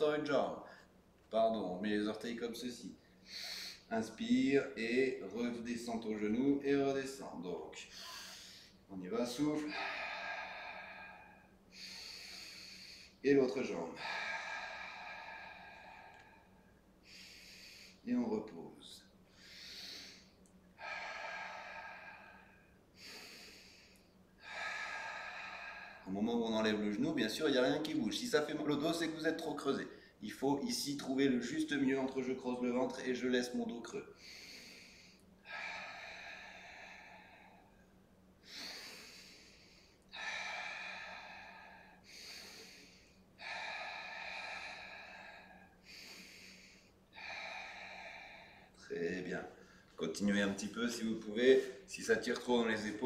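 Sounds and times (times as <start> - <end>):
man breathing: 3.0 - 4.2, 7.8 - 18.1, 19.0 - 27.5, 34.0 - 51.9.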